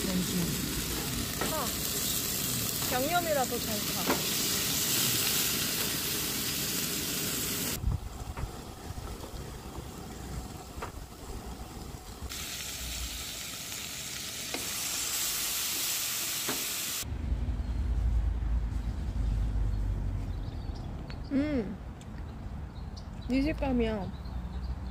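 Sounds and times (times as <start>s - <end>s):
meat sizzling over charcoal: 0.0s - 17.1s.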